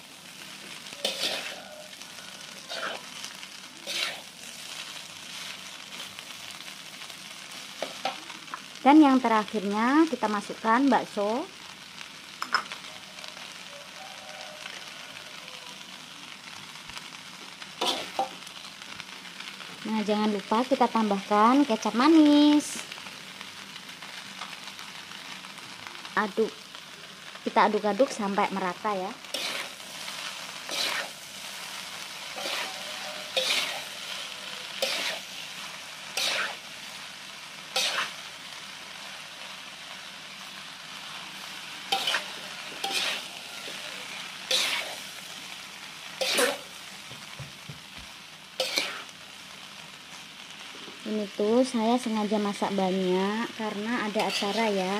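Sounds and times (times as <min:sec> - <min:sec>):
noodles sizzling in a wok: 0:00.0 - 0:54.9
metal spatula scraping wok: 0:00.7 - 0:05.0, 0:17.8 - 0:18.4, 0:29.2 - 0:36.8, 0:37.7 - 0:38.3, 0:41.4 - 0:45.3, 0:46.1 - 0:46.8, 0:48.6 - 0:49.1, 0:53.8 - 0:54.9.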